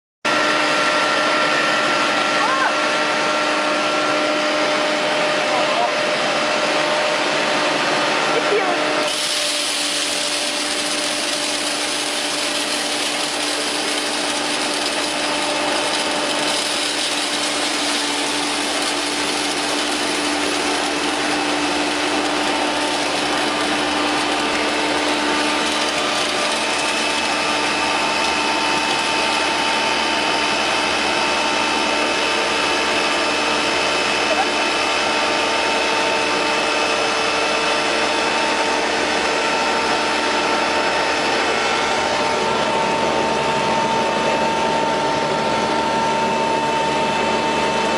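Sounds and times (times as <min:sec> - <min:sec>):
hammer mill grinding grain: 0:03.0 - 0:47.9.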